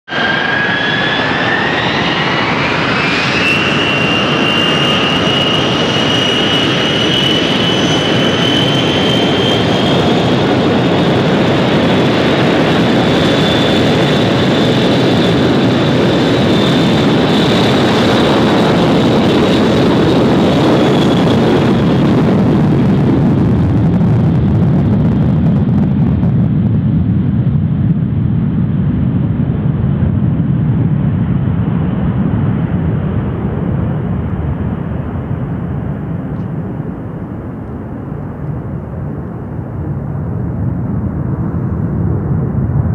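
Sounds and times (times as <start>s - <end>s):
jet engine whine: 0.0s - 42.9s
jetliner roar: 0.0s - 42.9s.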